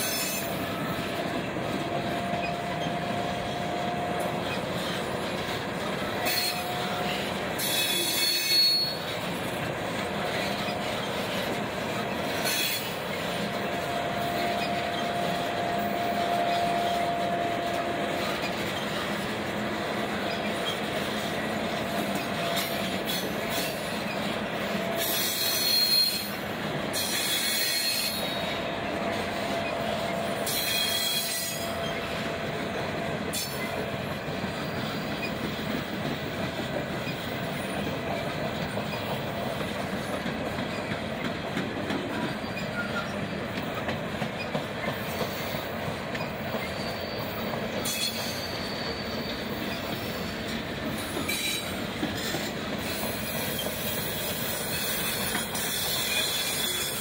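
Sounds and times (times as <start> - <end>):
train cars rumbling past: 0.0 - 57.0
wheel squeal: 6.1 - 9.1, 10.2 - 19.2, 25.0 - 26.4, 27.0 - 28.6, 29.5 - 32.2, 42.1 - 43.3, 46.2 - 50.4, 51.0 - 57.0.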